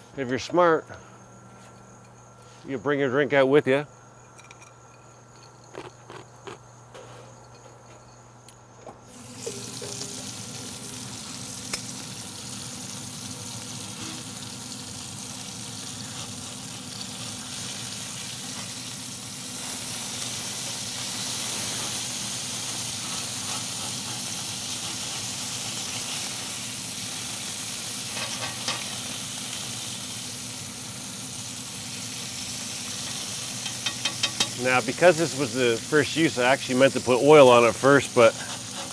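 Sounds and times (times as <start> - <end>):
bacon sizzling on a griddle: 9.1 - 38.9.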